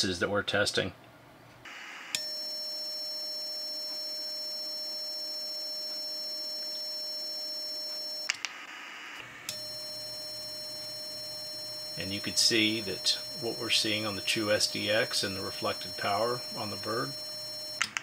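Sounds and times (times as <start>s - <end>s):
steady single-pitch beep: 2.2s - 8.3s, 9.5s - 17.8s.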